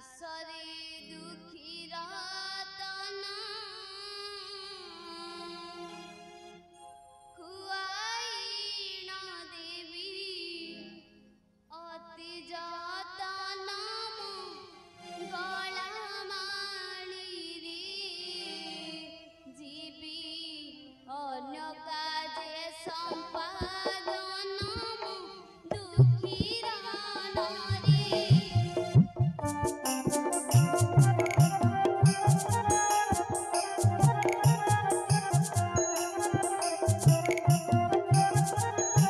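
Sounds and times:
woman singing devotional song: 0.0s - 6.0s, 7.3s - 11.1s, 11.7s - 28.8s
sharp drum strokes: 25.7s - 39.0s.

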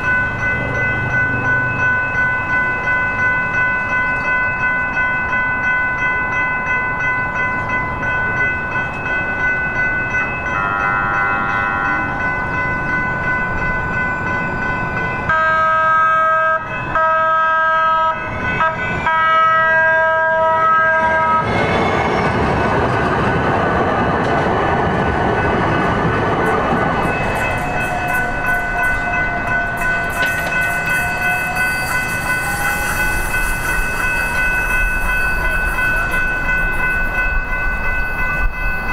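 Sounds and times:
crossing signal bells ringing: 0.0s - 38.9s
train rumbling: 0.0s - 38.9s
train horn blasts: 10.5s - 12.2s, 15.3s - 22.2s, 27.5s - 33.8s.

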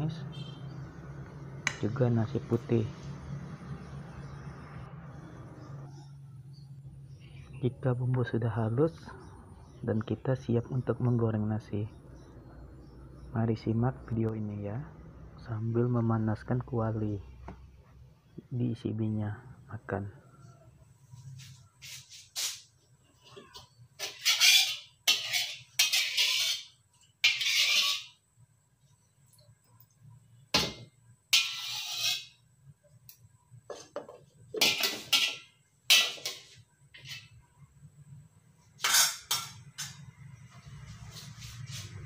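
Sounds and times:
metal spatula scraping a wok: 24.0s - 28.2s, 31.3s - 32.5s, 33.7s - 37.4s, 38.8s - 40.0s.

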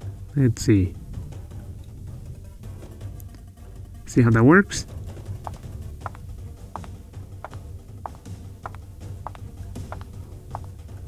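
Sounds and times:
background music: 0.0s - 11.0s
steady clicking beat: 5.5s - 6.2s, 6.8s - 10.7s.

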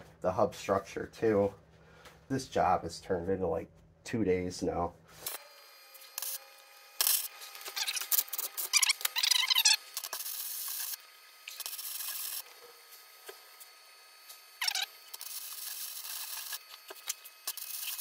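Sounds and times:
welding arc hissing and crackling: 5.2s - 18.0s.

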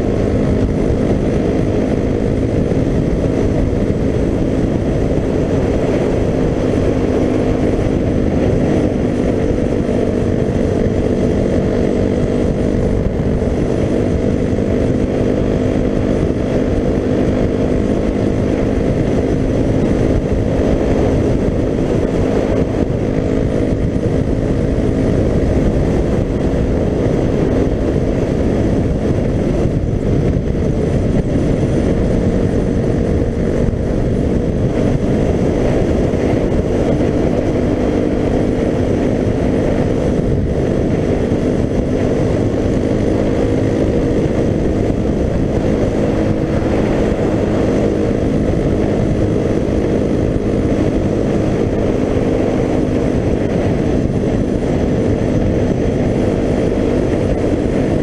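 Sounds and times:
motorcycle engine cruising: 0.0s - 58.0s
wind on microphone: 0.0s - 58.0s.

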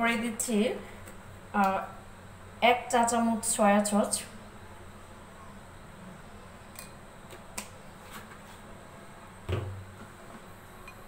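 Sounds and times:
dull knock: 9.5s - 9.8s.

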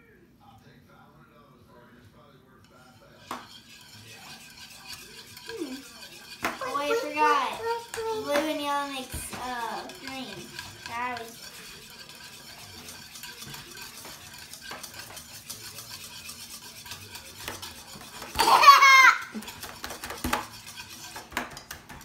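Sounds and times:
whisk stirring slime in bowl: 2.6s - 22.0s
child squealing: 18.4s - 19.3s.

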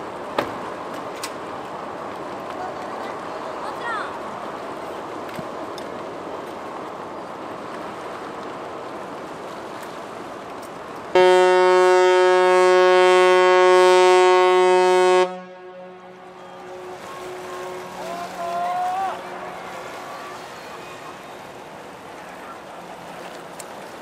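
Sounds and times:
ship's whistle blast: 11.2s - 21.4s.

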